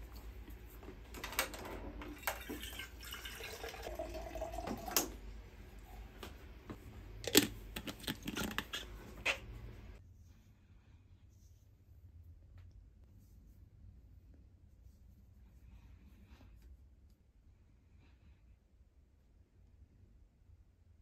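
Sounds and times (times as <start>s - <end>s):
water pouring into bottle: 2.1s - 5.2s.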